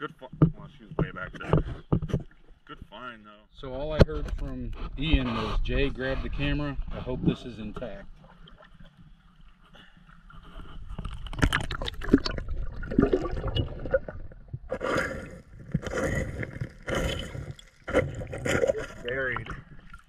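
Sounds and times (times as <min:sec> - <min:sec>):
water sloshing underwater: 0:00.1 - 0:03.1, 0:03.9 - 0:20.0
stones scraping: 0:13.6 - 0:19.7.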